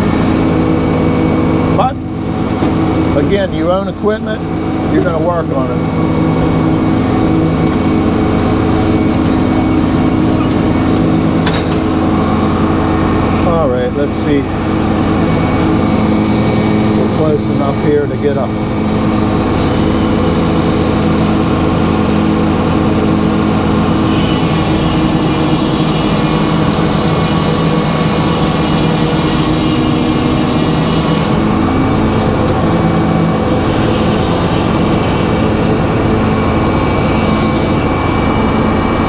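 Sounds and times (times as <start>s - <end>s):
sawmill humming: 0.0s - 39.0s
saw hissing through wood: 24.0s - 26.8s.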